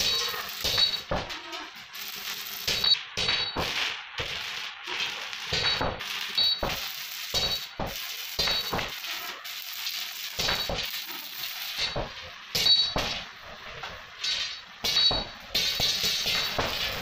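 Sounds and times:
sharp metallic clinks: 0.0 - 1.1, 12.5 - 13.0
arc welding crackling hiss: 0.0 - 17.0.

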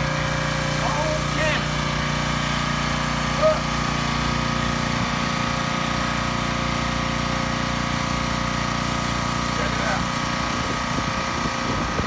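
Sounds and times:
pressure washer machine hum: 0.0 - 12.0
hiss of foam spray: 8.8 - 11.0.

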